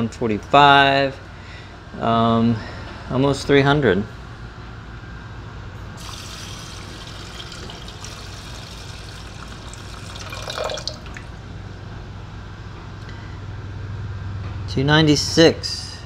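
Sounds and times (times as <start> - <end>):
water pouring into pot: 6.0 - 11.4.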